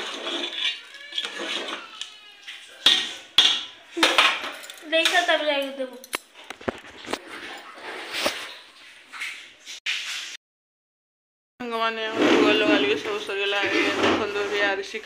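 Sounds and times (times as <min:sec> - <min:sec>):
spoon scraping metal pot: 0:00.0 - 0:04.8.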